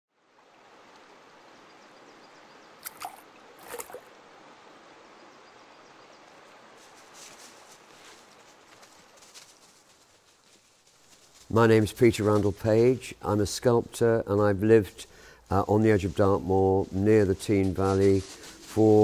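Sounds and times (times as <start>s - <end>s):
stream water trickling: 0.2s - 8.8s
water drop plinks: 2.8s - 4.1s.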